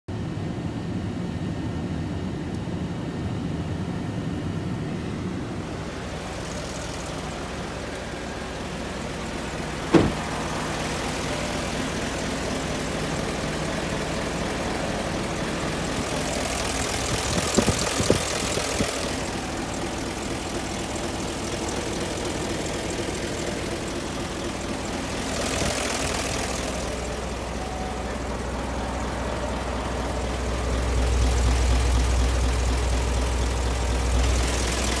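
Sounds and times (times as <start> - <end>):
diesel truck engine idling: 0.2 - 35.0
sharp knock: 9.9 - 10.2.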